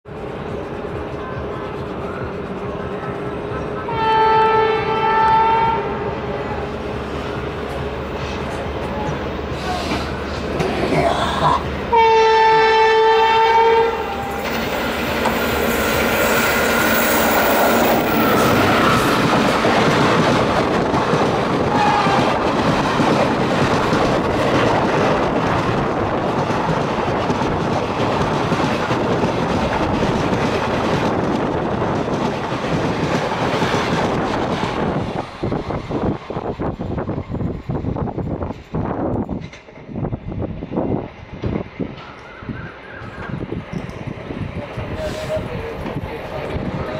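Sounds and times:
train wheels rumbling on rails: 0:00.1 - 0:46.9
clickety-clack over rail joints: 0:07.6 - 0:11.7, 0:14.1 - 0:16.8, 0:17.4 - 0:46.9.

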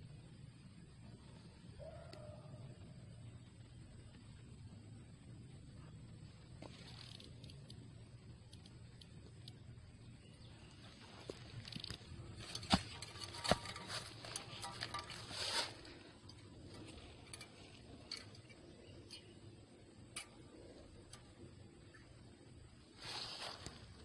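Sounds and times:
rustling in dry leaves: 0:10.7 - 0:18.2, 0:22.8 - 0:24.0.

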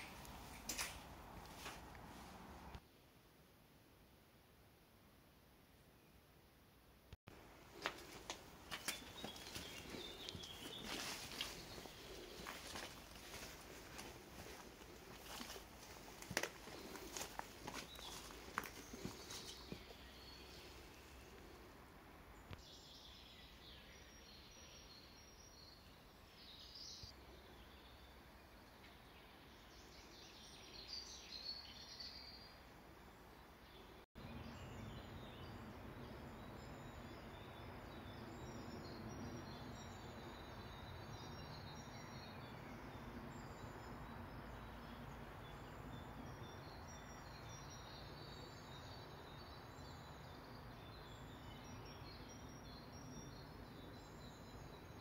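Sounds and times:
outdoor background noise: 0:00.0 - 0:55.0
birds chirping: 0:07.7 - 0:21.6.

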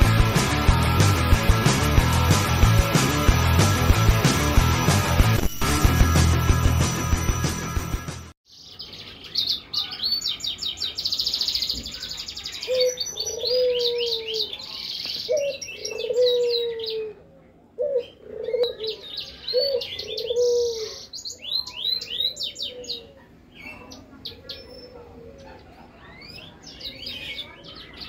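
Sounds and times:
dove cooing: 0:12.7 - 0:14.5, 0:15.3 - 0:17.2, 0:17.8 - 0:21.0.

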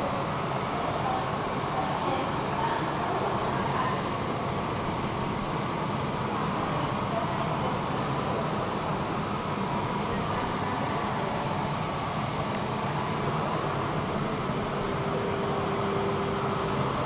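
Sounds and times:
metro station drone: 0:00.0 - 0:17.0.

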